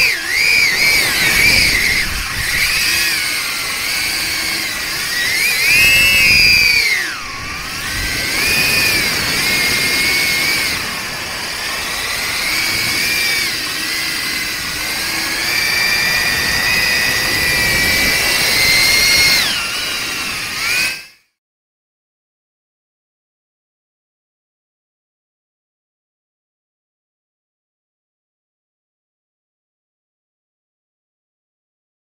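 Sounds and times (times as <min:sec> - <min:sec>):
drone whining in flight: 0:00.0 - 0:21.4.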